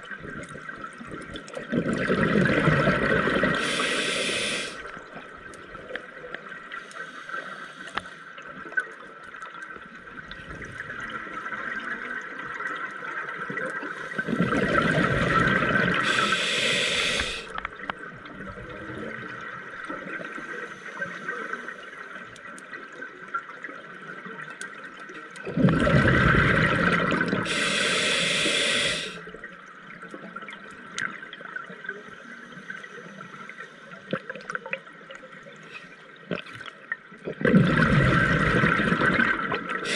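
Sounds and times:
exhaled bubbles rushing underwater: 0.0s - 5.9s, 10.1s - 21.7s, 25.4s - 31.6s, 36.2s - 39.9s
regulator hiss: 3.5s - 4.9s, 16.0s - 17.6s, 27.4s - 29.3s
faint clicks: 4.8s - 10.5s, 21.0s - 23.4s, 30.0s - 31.4s.

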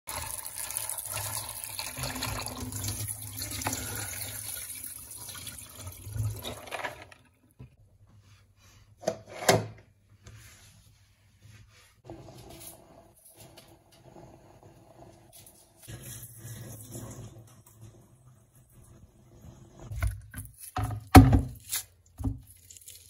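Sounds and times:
tap water running: 0.1s - 7.7s, 12.1s - 21.5s.

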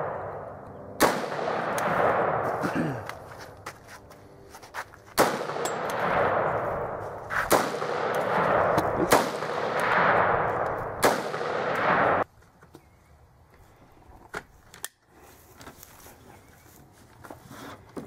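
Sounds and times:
rifle shots with echo: 0.0s - 2.7s, 5.2s - 12.2s.

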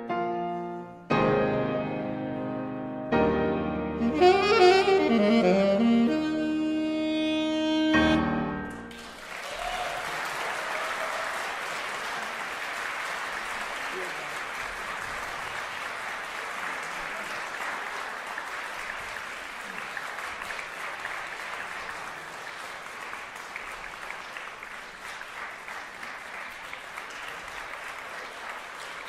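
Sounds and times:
audience applauding: 8.6s - 29.0s.

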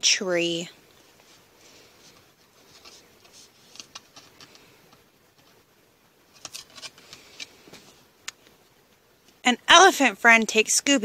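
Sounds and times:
cardboard pages turning: 2.0s - 4.7s, 6.3s - 8.0s.

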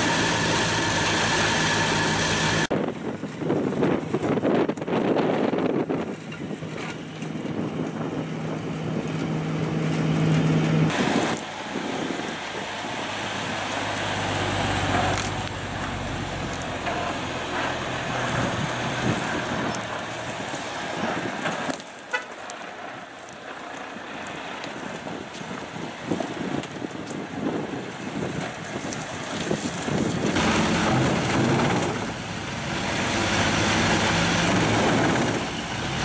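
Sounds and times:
truck diesel engine running: 0.0s - 2.7s, 8.0s - 23.0s, 29.8s - 36.0s
road noise: 0.0s - 36.0s.

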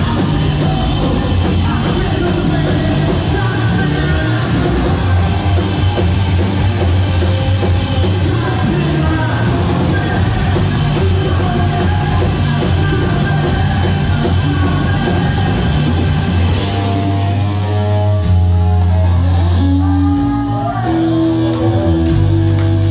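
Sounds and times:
live rock band playing: 0.0s - 22.9s.

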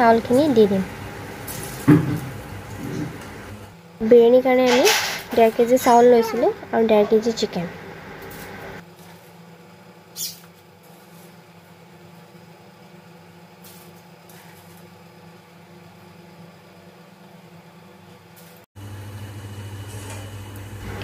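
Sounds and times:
water boiling in pot: 0.0s - 3.8s.

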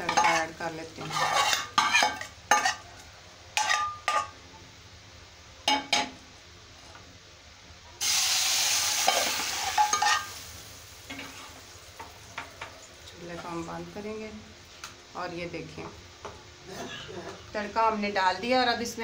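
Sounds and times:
hot oil sizzling: 0.0s - 4.4s, 8.0s - 14.8s
metal spoon clinking on pan: 3.6s - 4.3s, 9.1s - 10.3s.

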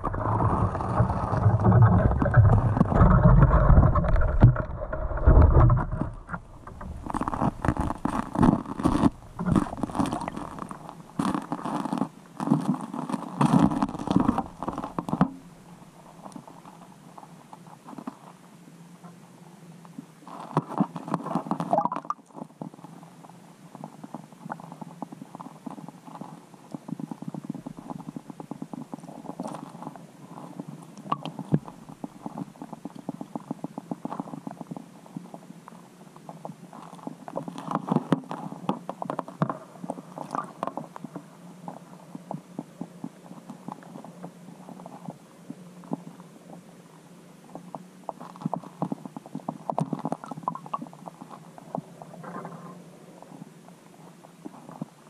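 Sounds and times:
knocking and scraping under ice: 0.0s - 15.5s
muffled underwater rumble: 0.0s - 55.0s.

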